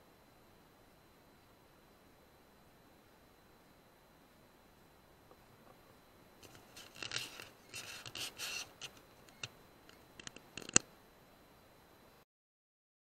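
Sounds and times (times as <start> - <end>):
close scratching and rubbing: 6.4 - 10.8.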